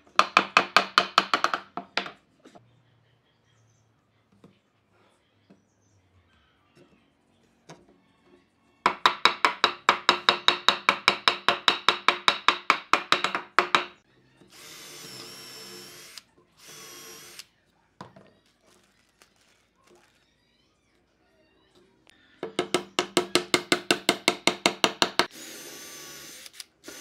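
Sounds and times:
hammering on wood: 0.2 - 2.2, 8.9 - 14.0, 22.4 - 25.3
electric drill boring wood: 14.5 - 17.4, 24.9 - 27.0.

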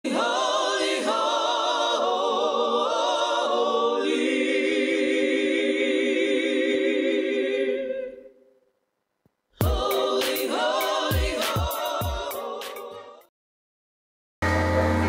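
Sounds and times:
choir singing held chords: 0.0 - 8.4, 9.6 - 13.3.

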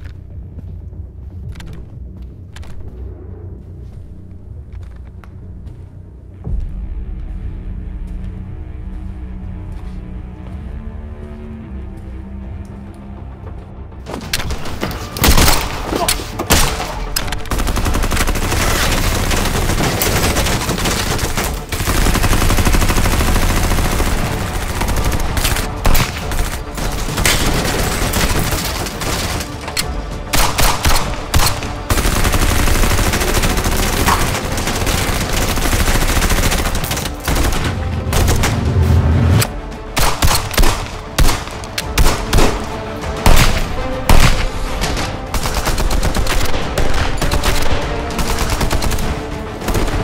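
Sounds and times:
rapid pistol shots: 30.4 - 37.4.

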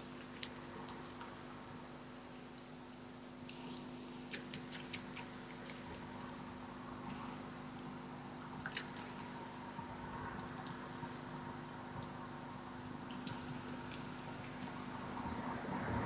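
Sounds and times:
steady low hum: 0.0 - 16.0
fox cub chewing: 0.1 - 11.3, 12.8 - 15.0.

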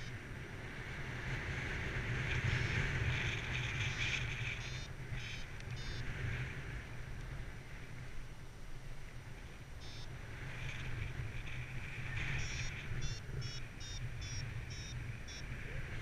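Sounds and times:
wind rushing over microphone: 0.0 - 16.0
variometer short pitched beeps: 3.8 - 6.1, 9.8 - 10.2, 12.2 - 15.6.

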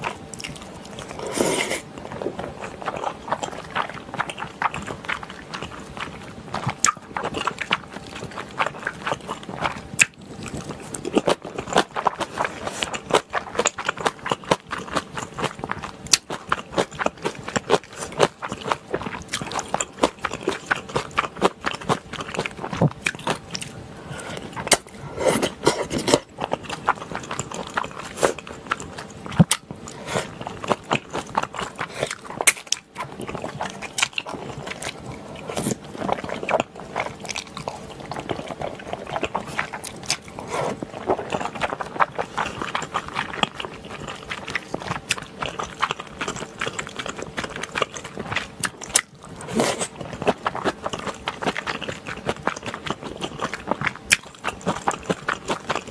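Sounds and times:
wet chewing: 0.0 - 55.9
slurping noodles: 1.1 - 2.4, 24.1 - 26.3, 38.2 - 43.2, 49.4 - 50.0.

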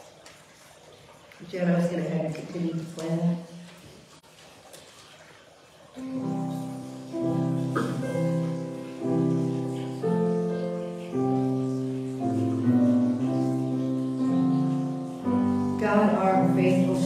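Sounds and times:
piano playing slow chords: 6.0 - 17.0.

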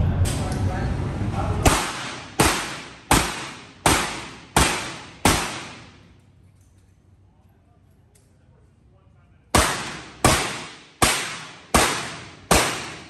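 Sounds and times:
revolver shots indoors: 1.6 - 7.3, 9.5 - 13.0.

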